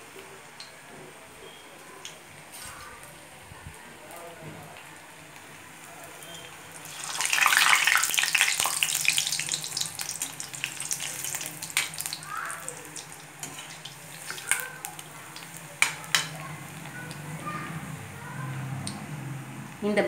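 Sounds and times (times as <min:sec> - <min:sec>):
food sizzling in hot oil: 0:04.8 - 0:17.9.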